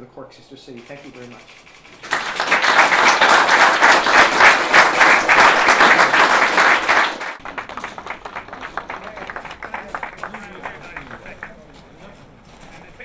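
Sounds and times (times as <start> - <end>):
audience applauding: 2.0 - 11.8.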